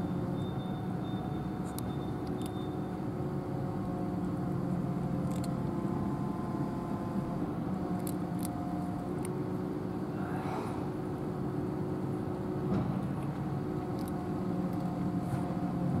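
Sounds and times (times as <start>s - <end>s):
low background rumble: 0.0s - 16.0s
cat crunching dry kibble: 5.1s - 5.8s, 7.9s - 9.4s, 13.8s - 15.0s.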